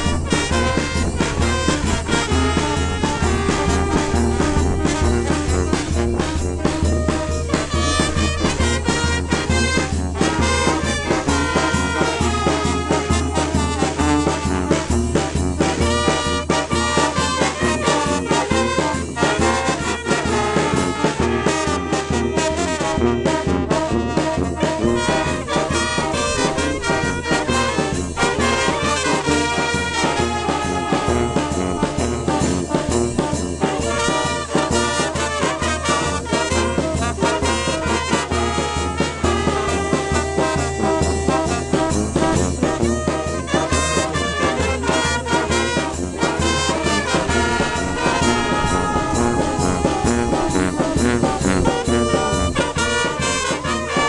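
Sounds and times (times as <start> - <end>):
steady bass line: 0.0 - 16.1, 46.0 - 53.5
brass band playing lively tune: 0.0 - 54.0.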